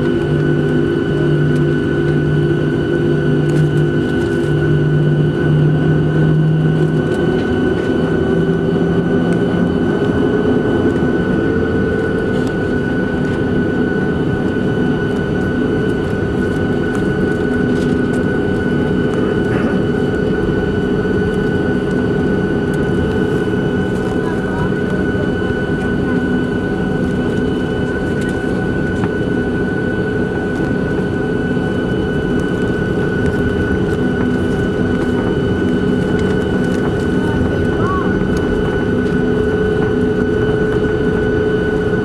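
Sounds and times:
jet engine whine: 0.0s - 42.0s.

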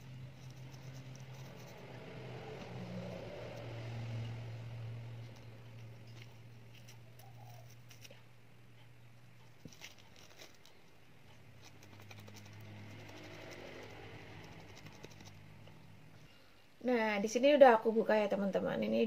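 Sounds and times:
steady low hum: 0.0s - 19.0s
small ticks and crackles: 11.6s - 15.4s.

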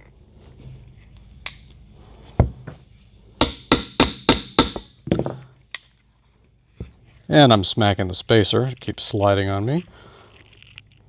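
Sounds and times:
hammer knocks on metal axle: 3.4s - 5.5s.

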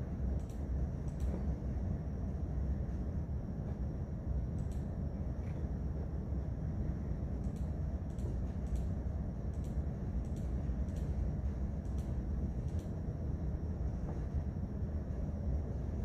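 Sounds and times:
low rumbling room noise: 0.0s - 16.0s
computer mouse clicks: 0.4s - 1.4s, 4.6s - 4.9s, 7.4s - 11.2s, 11.8s - 13.0s.

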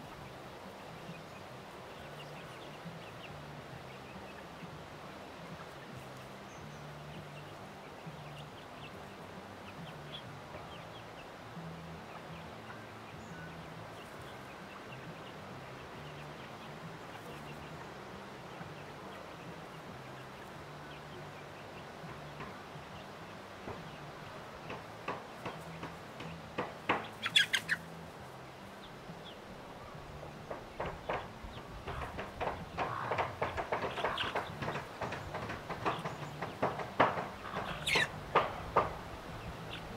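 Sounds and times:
chicks chirping: 0.0s - 4.8s, 5.6s - 11.3s, 12.1s - 39.9s
hen clucking: 12.0s - 39.9s
sharp bird calls and clicks: 12.1s - 27.9s, 30.2s - 39.9s.

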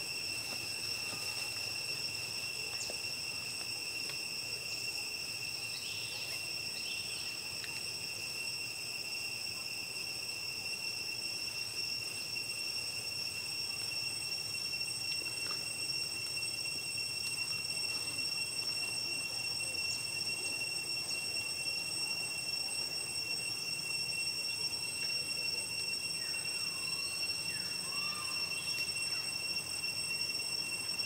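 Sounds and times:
insects trilling: 0.0s - 31.0s.

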